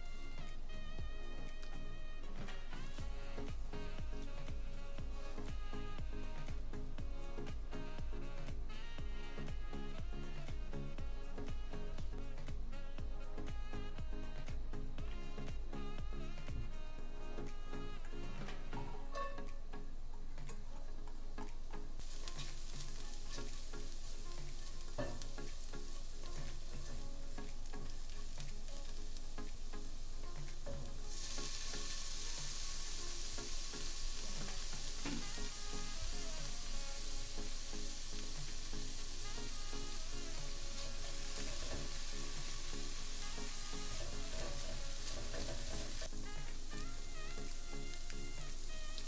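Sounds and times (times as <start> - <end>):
background music: 0.0 - 49.0
onion sizzling in hot oil: 0.0 - 49.0
spatula stirring in pan: 17.4 - 49.0.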